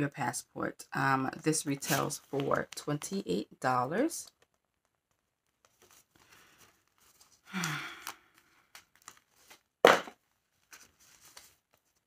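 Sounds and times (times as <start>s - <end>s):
person sighing: 7.5s - 8.6s.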